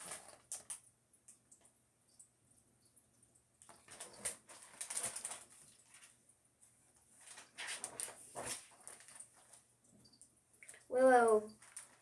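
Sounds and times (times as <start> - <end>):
paper rustling: 3.7 - 6.2, 7.2 - 9.7.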